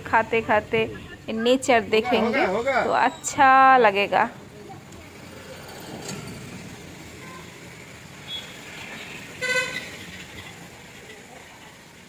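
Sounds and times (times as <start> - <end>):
steady background noise: 0.0 - 12.0
vehicle horn honk: 9.4 - 10.0.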